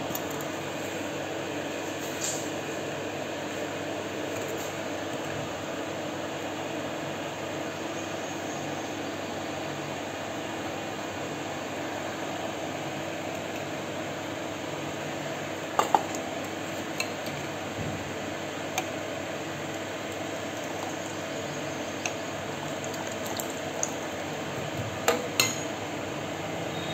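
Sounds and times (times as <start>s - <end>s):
electric fan whirring: 0.0s - 26.9s
liquid pouring: 19.7s - 24.4s
ladle clinking in metal bowl: 25.1s - 25.7s.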